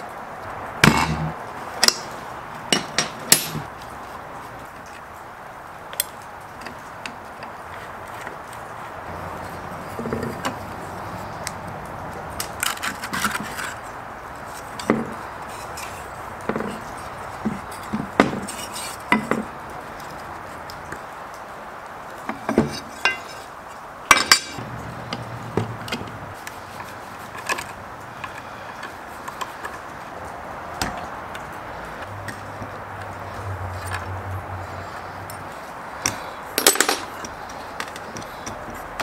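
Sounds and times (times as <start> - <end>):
steady background hiss: 0.0 - 39.0
metal tools clinking: 2.7 - 3.7, 24.1 - 25.3, 34.9 - 38.6.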